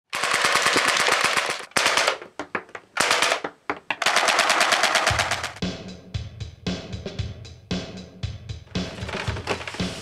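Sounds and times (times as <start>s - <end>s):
airsoft guns firing bursts: 0.1s - 2.2s, 3.0s - 3.4s, 4.0s - 5.6s.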